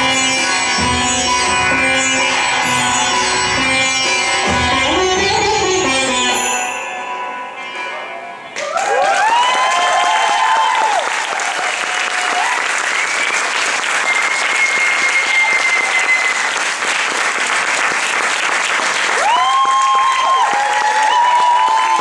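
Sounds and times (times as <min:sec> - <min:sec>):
audience applauding: 0:08.6 - 0:22.0.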